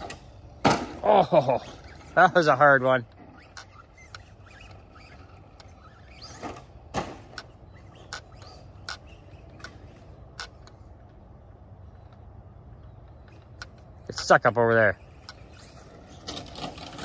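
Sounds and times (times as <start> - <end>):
faint motor whine: 0.0 - 17.0.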